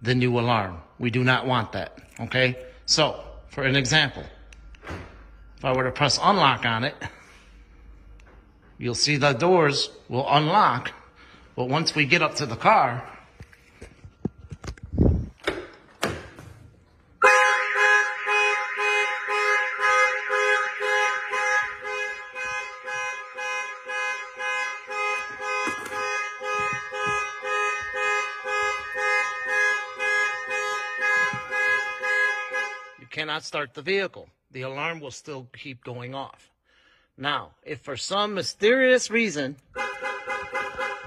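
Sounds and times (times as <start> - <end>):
car alarm pulsing loudly: 17.2 - 33.2, 39.6 - 41.0.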